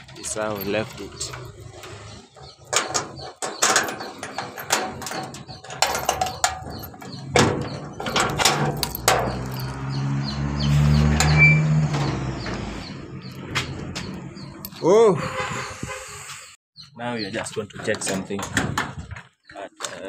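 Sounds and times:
keys jingling: 0:00.3 - 0:10.0
metal door scraping open: 0:00.3 - 0:16.6
padlock clicking and rattling: 0:00.6 - 0:09.9.

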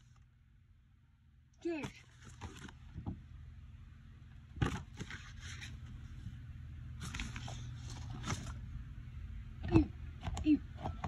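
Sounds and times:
low steady hum: 0:00.0 - 0:11.0
rustling handling noise: 0:01.8 - 0:03.3, 0:04.5 - 0:08.8.

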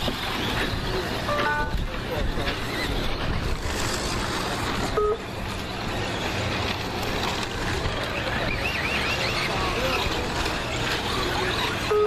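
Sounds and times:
rc truck motors: 0:00.0 - 0:12.0
tyres on dirt: 0:00.0 - 0:12.0
short beep: 0:01.3 - 0:01.8.

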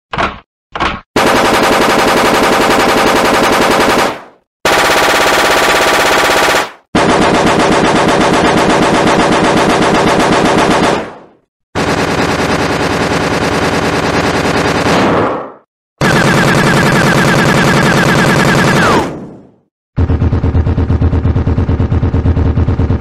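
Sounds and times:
automatic gunfire bursts: 0:01.2 - 0:11.2, 0:16.0 - 0:19.3.

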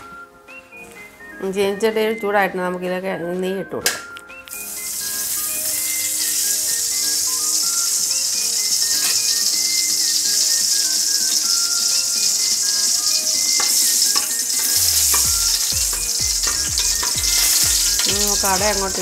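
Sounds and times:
ghee sizzling in a pan: 0:04.5 - 0:19.0
metal ladle stirring: 0:16.4 - 0:18.2.

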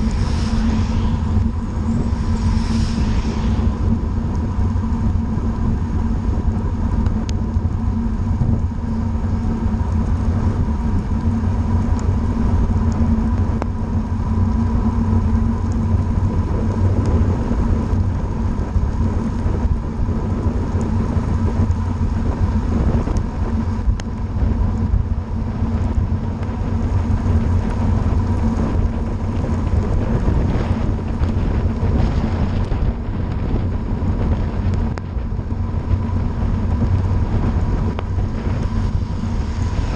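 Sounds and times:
tyre hiss on wet road: 0:00.0 - 0:06.1
steady low rumble: 0:00.0 - 0:39.9
wind buffeting microphone: 0:00.0 - 0:39.9.

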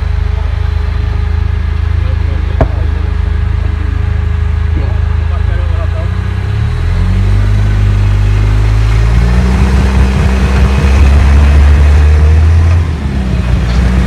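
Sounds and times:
buggy engine running under load: 0:00.0 - 0:14.0.

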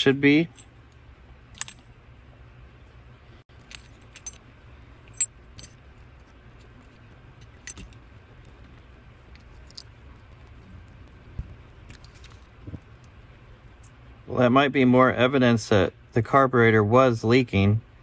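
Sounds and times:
low steady hum: 0:00.0 - 0:18.0
metallic clicks of tools: 0:01.5 - 0:01.8.

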